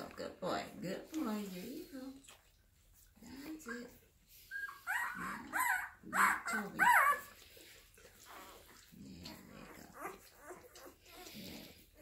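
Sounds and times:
puppy squealing: 4.6s - 7.3s
dog licking: 6.6s - 12.0s.

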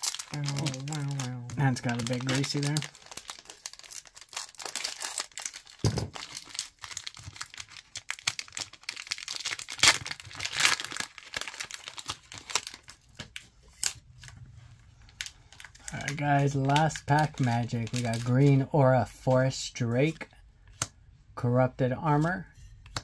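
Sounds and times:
foil wrapper crinkling: 0.0s - 14.0s, 15.0s - 18.7s.

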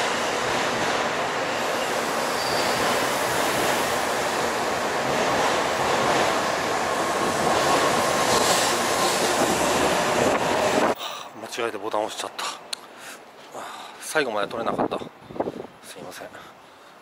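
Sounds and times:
train passing with rushing wheels: 0.0s - 11.0s.

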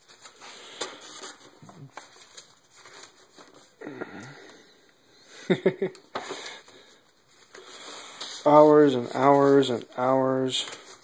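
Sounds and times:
paper sheets being turned: 0.0s - 3.8s, 6.2s - 11.0s.

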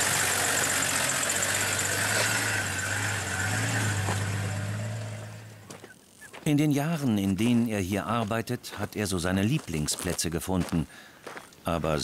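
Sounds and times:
engine running at low revs: 0.0s - 5.9s.

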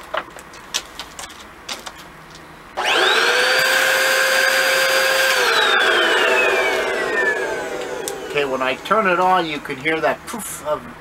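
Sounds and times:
upright vacuum motor whine: 2.8s - 9.7s.

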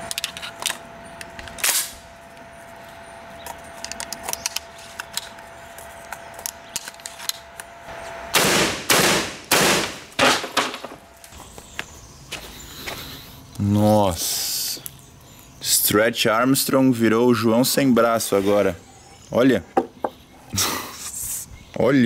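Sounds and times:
shotgun shots: 8.3s - 10.7s.

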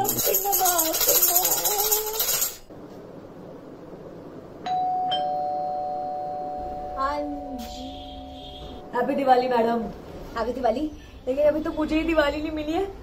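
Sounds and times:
tambourine jingling: 0.0s - 2.7s
electronic doorbell chime: 4.7s - 9.0s.

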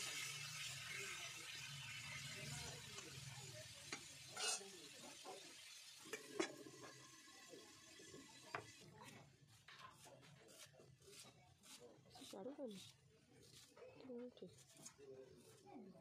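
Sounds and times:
potatoes sizzling in oil: 0.0s - 9.2s
metal spatula scraping wok: 4.2s - 4.8s
steel utensils and lid clinking: 4.2s - 4.8s.

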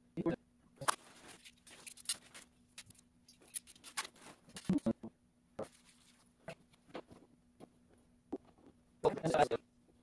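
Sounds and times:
faint steady hum: 0.0s - 10.0s
plastic bags rustling: 0.9s - 4.7s.

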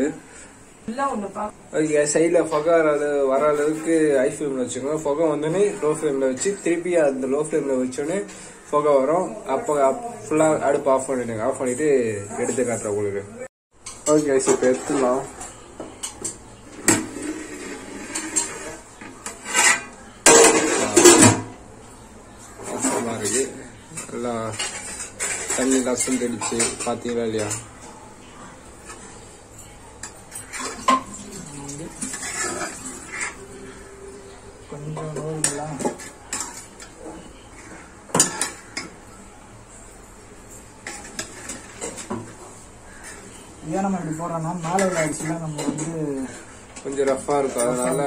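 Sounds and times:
spoon scraping metal pot: 16.8s - 21.4s, 22.6s - 27.6s, 30.0s - 33.8s
metal lid clattering and scraping: 16.8s - 21.5s.

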